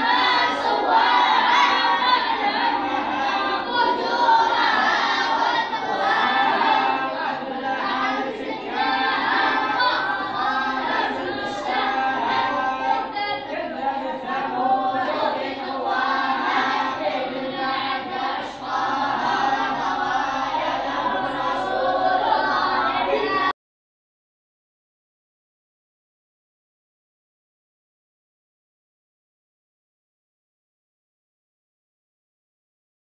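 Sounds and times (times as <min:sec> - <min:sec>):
children reciting together: 0:00.0 - 0:23.6.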